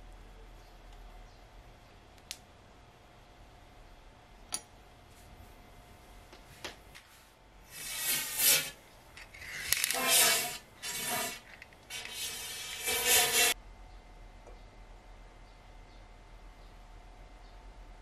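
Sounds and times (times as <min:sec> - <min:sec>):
rod scraping inside metal tube: 0:07.7 - 0:13.6.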